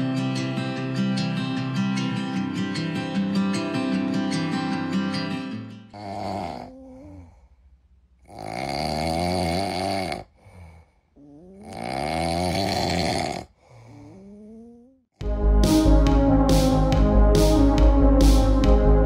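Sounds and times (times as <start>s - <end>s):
kitten snoring: 6.0s - 7.4s, 8.2s - 15.1s
faint breaths: 6.0s - 7.8s, 10.2s - 11.8s, 13.3s - 15.0s.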